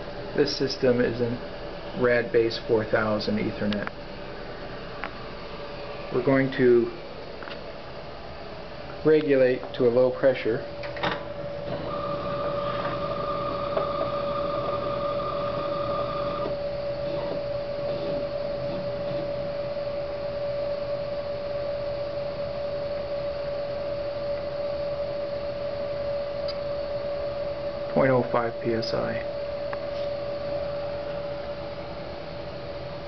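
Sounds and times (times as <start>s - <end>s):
machine hum with whine: 0.0s - 33.0s
higher-pitched whine: 9.0s - 33.0s.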